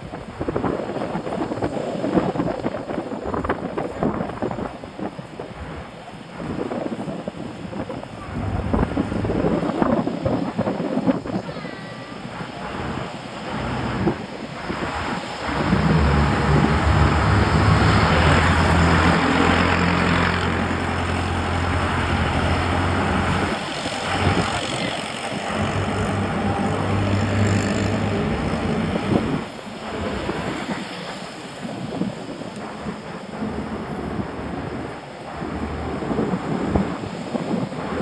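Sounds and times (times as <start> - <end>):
constant rushing noise: 0.0 - 38.0
vehicle engine running: 15.5 - 30.2.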